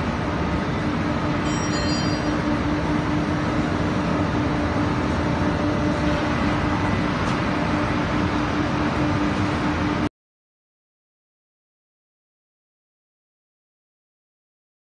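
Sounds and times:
belt dryer machine humming: 0:00.0 - 0:10.1.

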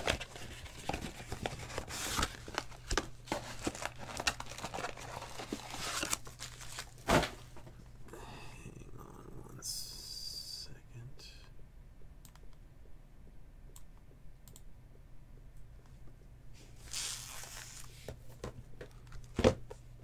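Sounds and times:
wrapper and cardboard rustling: 0:00.0 - 0:07.6, 0:16.8 - 0:18.1.

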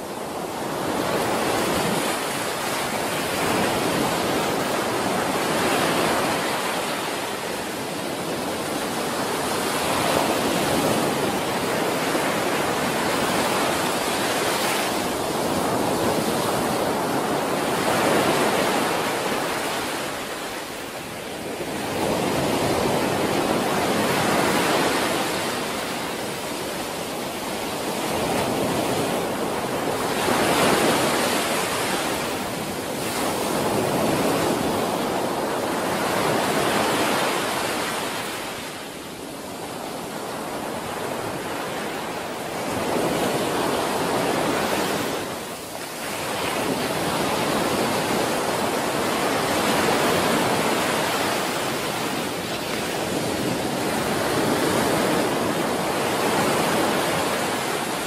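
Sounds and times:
surf breaking on beach: 0:39.6 - 0:58.0.

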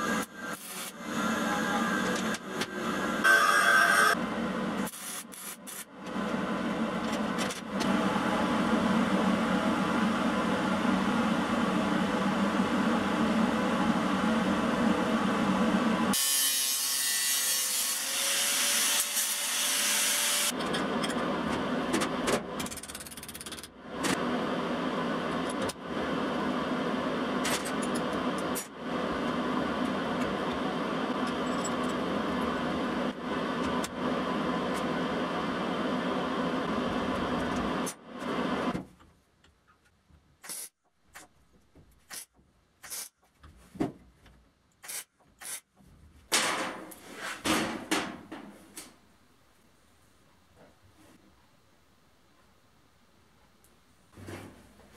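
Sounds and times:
metalworking power tool: 0:00.0 - 0:04.2, 0:11.6 - 0:21.2.

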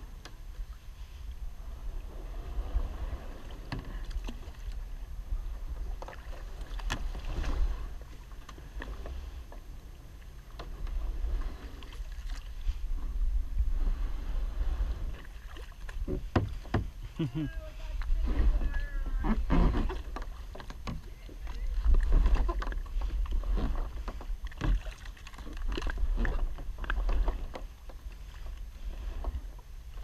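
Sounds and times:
wind rumble on microphone: 0:00.0 - 0:30.0
paddle splashes: 0:00.2 - 0:30.0
paddle and hull knocking on wood: 0:15.9 - 0:28.5.

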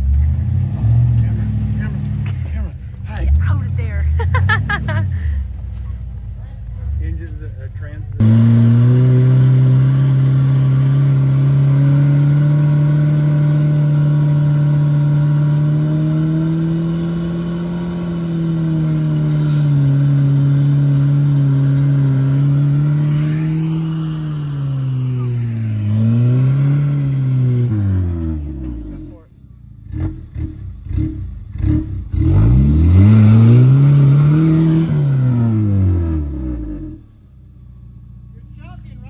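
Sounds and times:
car engine revving: 0:00.0 - 0:39.0.

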